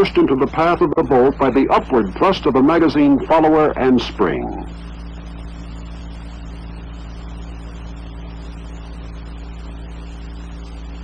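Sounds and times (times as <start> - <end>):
narration voice: 0.0 - 4.7
film soundtrack hiss: 0.0 - 11.0
low hum: 0.0 - 11.0.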